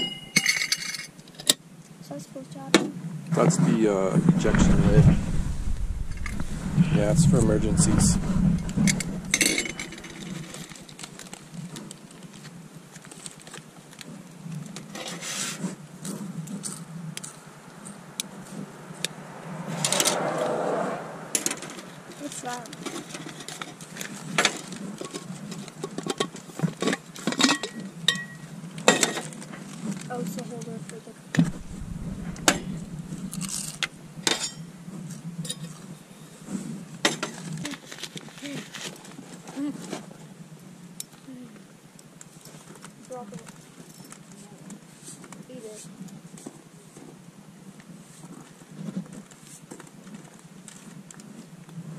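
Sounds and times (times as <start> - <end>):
metal cup clinking on metal table: 0.0 - 1.0
low hum: 4.0 - 11.3, 31.4 - 34.8.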